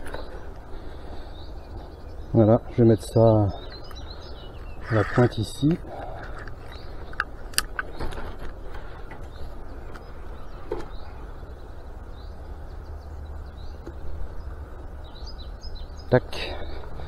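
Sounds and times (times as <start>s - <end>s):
birds chirping faintly: 0.0s - 17.0s
fishing gear clicks and knocks: 5.8s - 10.1s.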